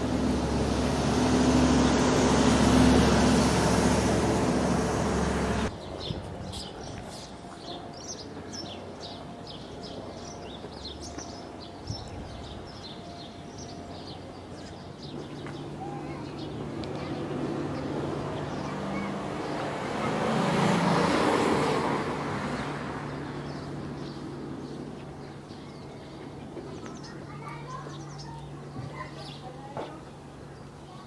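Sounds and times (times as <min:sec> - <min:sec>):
loud vehicle engine: 0:00.0 - 0:05.8, 0:13.9 - 0:26.7
street ambience: 0:00.0 - 0:31.0
small birds chirping: 0:05.6 - 0:19.8, 0:23.0 - 0:31.0.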